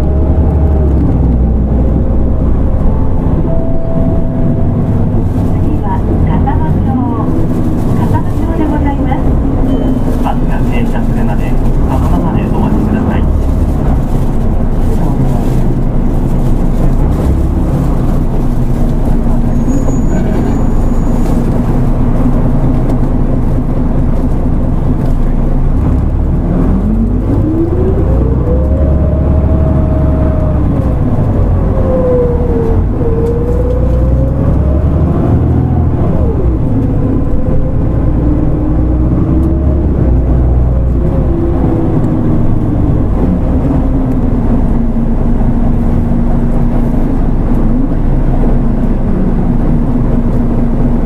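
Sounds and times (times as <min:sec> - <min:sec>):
whine climbing in pitch: 0:00.0 - 0:05.6
bus diesel engine droning: 0:00.0 - 0:51.0.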